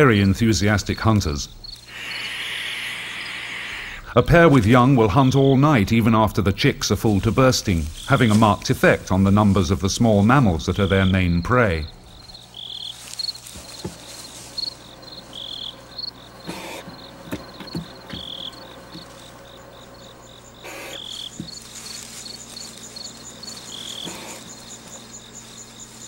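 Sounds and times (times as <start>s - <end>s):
crickets chirping: 0.0s - 26.0s
higher-pitched cricket chirping: 1.4s - 4.1s, 10.9s - 26.0s.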